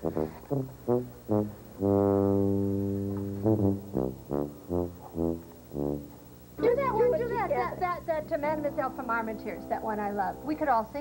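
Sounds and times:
low brass instrument tune: 0.0 - 8.8.

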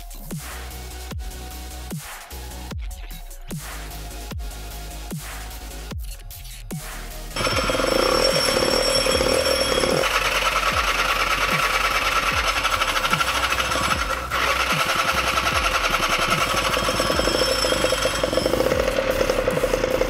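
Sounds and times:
buzzing pulsing synth: 7.4 - 20.0.

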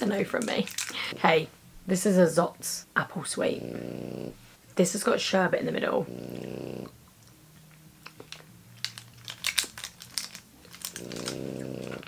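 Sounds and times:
plastic wrapper crinkling: 0.1 - 1.1, 8.1 - 12.0
dog snoring: 3.4 - 4.5, 5.8 - 7.0, 10.9 - 12.0.

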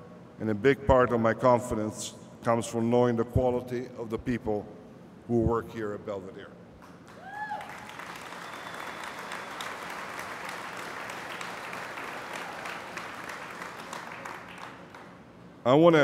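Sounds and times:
audience applauding: 7.1 - 15.2.

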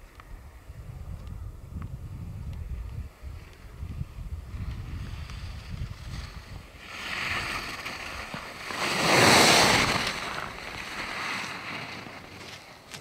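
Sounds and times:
wind buffeting microphone: 0.0 - 11.6
skis scraping on packed snow: 4.4 - 13.0.

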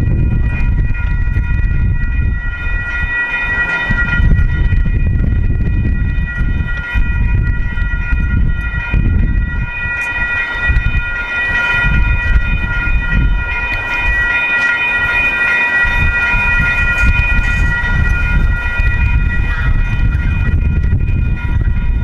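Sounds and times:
freight train cars rolling: 0.0 - 22.0
railroad crossing bells ringing: 0.0 - 22.0.

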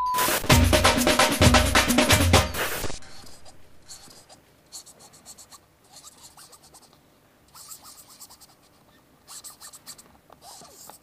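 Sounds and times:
hands scratching on a ball: 2.6 - 6.9, 7.5 - 11.0.

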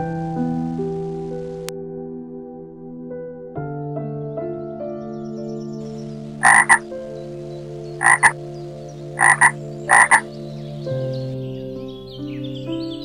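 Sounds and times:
soft background music: 0.0 - 13.0
animal harsh calls: 6.4 - 6.8, 8.0 - 8.4, 9.2 - 10.2.

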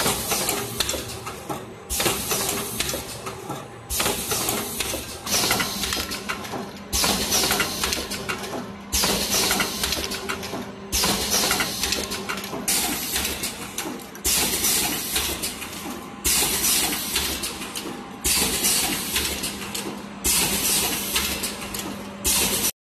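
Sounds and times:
pneumatic air hiss and clatter: 1.9 - 3.3, 3.9 - 6.2, 6.9 - 8.2, 8.9 - 10.1, 10.9 - 12.1, 14.2 - 19.6, 20.2 - 22.7.

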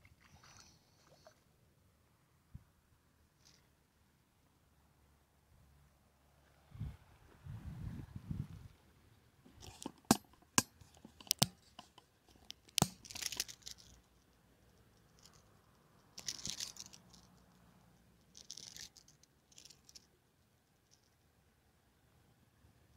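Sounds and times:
rustling and scraping: 9.5 - 20.1.

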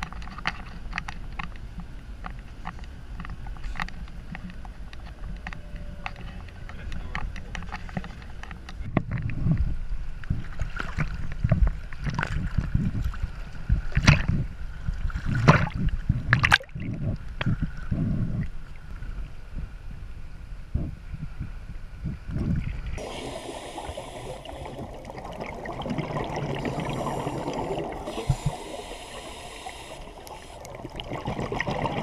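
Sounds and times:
small waves sloshing and gurgling: 9.2 - 19.8, 21.4 - 32.0
water splashing over camera housing: 22.7 - 32.0.

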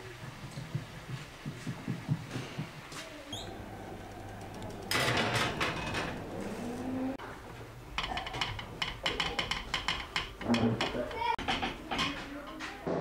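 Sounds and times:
oven rack scraping: 3.4 - 7.2.

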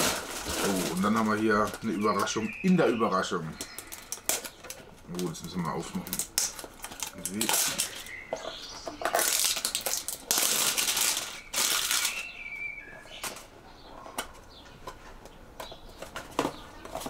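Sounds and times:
packaging scratches: 0.0 - 2.5, 3.6 - 8.2, 9.0 - 12.3
packaging rustling and crinkling: 0.0 - 12.4.

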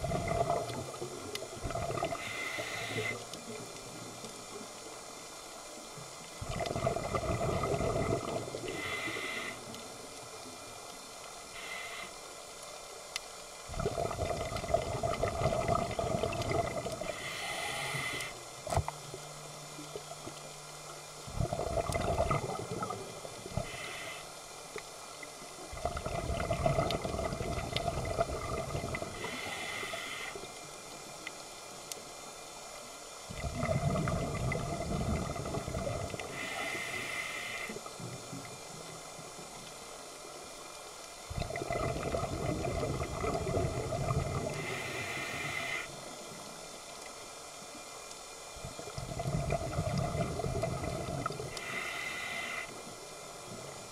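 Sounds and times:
exhaled bubbles rushing underwater: 0.0 - 2.5, 6.4 - 8.9, 13.7 - 17.4, 21.2 - 23.8, 25.7 - 29.5, 33.3 - 36.5, 41.3 - 45.6, 48.6 - 51.7
regulator inhalation hiss: 2.1 - 3.3, 8.6 - 9.8, 11.5 - 12.5, 17.0 - 18.6, 23.5 - 24.4, 29.2 - 30.6, 36.2 - 38.1, 44.4 - 46.1, 51.4 - 53.0.

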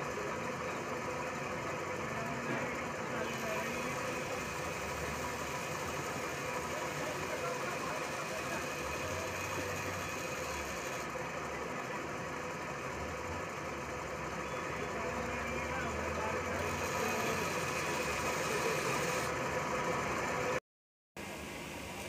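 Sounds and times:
grinding wheel motor hum: 0.0 - 20.6
metal hissing on grinding wheel: 3.2 - 11.1, 16.2 - 19.4.

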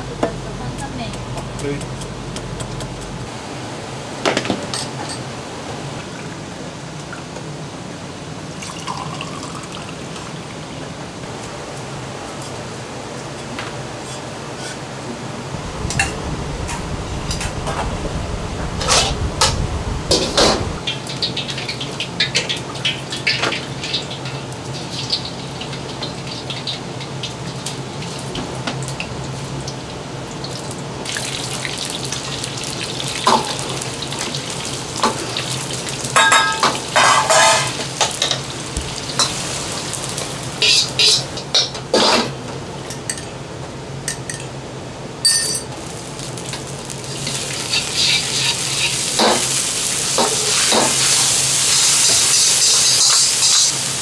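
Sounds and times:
steady low hum: 0.0 - 4.2, 15.1 - 20.9
metal ladle clanking against wok: 36.2 - 38.4.

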